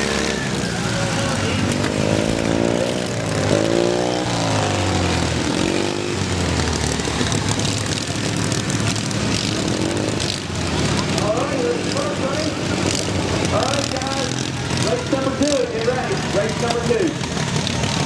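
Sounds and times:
lawn mower engines revving: 0.0s - 18.0s.

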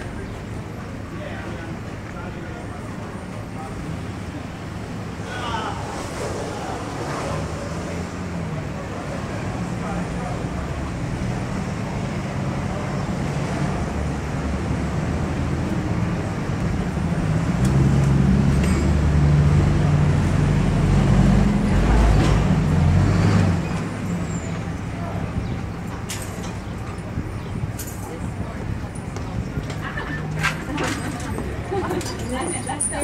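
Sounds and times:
street traffic: 0.0s - 33.0s.

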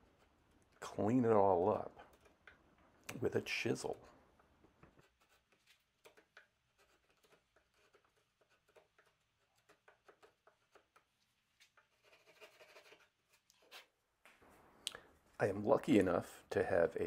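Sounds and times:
chisel scraping wood: 4.7s - 13.9s.

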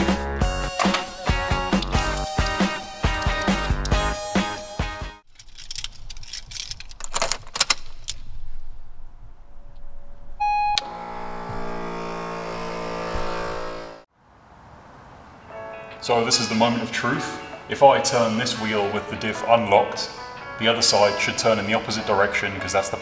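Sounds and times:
keys jangling and clicking: 5.2s - 8.2s
short electronic beep: 10.4s - 12.1s
air compressor humming: 10.4s - 14.1s.

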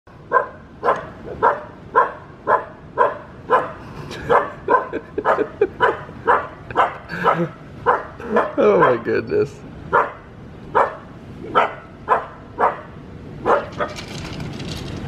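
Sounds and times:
puppy barking: 0.3s - 9.1s, 9.9s - 14.0s.

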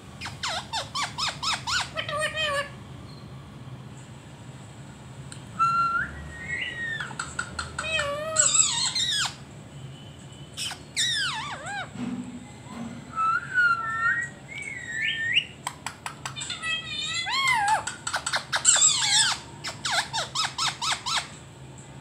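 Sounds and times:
parakeet whistling and calling: 0.2s - 3.2s, 5.6s - 9.4s, 10.5s - 12.0s, 13.1s - 21.4s.

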